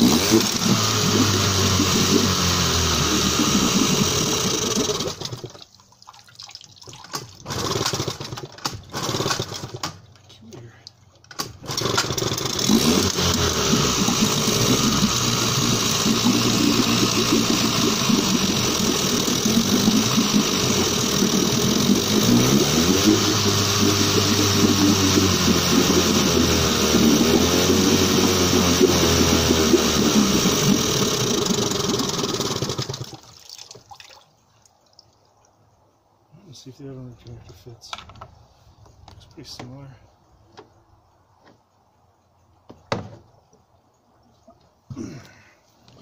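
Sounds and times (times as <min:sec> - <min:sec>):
outboard motor revving: 0:00.0 - 0:05.6, 0:07.4 - 0:09.8, 0:11.6 - 0:33.2
starter rope pull: 0:00.0 - 0:05.6, 0:07.1 - 0:10.0, 0:11.3 - 0:33.2
propeller churning water: 0:00.0 - 0:09.8, 0:11.6 - 0:35.1.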